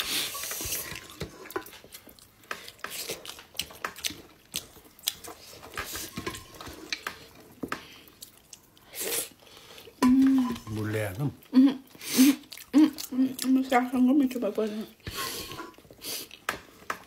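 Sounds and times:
chewing: 0.4 - 13.7.

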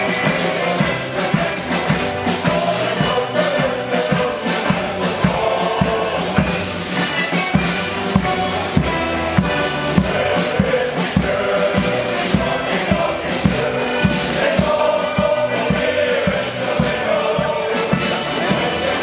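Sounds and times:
accordions: 0.0 - 19.0
bass drum beating: 0.0 - 19.0
men's choir singing: 0.0 - 19.0.

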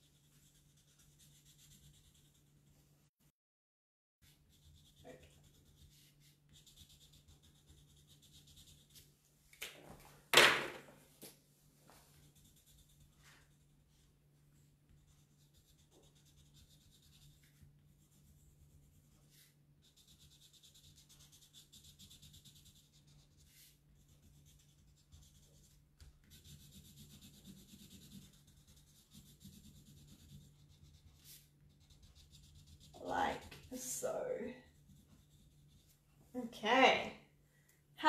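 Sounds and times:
marker pen scratching on paper: 0.0 - 2.6, 4.2 - 9.1, 12.1 - 13.8, 14.9 - 33.8, 34.7 - 36.0.

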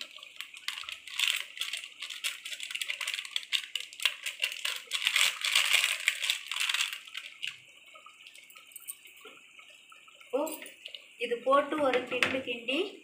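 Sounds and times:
plastic packet crinkling: 0.0 - 9.0.

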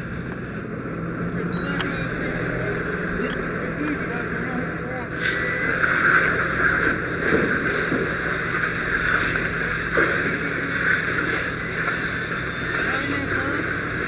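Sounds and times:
low hum: 0.0 - 14.0
fire hose water spraying: 5.1 - 14.0.

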